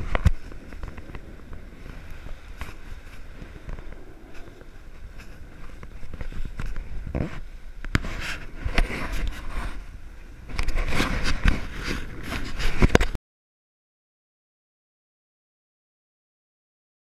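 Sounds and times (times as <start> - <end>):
wind rushing over microphone: 0.0 - 13.2
camera knocks and scrapes: 5.8 - 9.8, 10.5 - 13.2.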